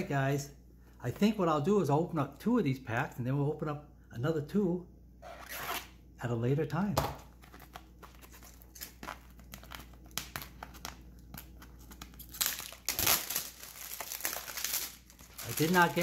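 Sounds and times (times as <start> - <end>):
plastic shrink wrap crinkling: 7.3 - 16.0.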